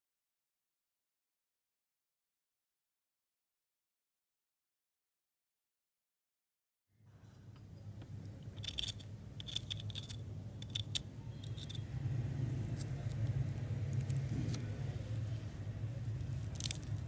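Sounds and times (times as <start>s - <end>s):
steady low hum: 7.0s - 17.0s
crispy coating crackling: 12.6s - 17.0s.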